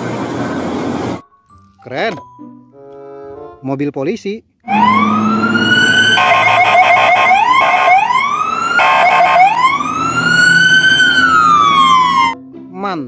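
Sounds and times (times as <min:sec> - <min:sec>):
electronic siren wailing and warbling: 0:04.7 - 0:12.4.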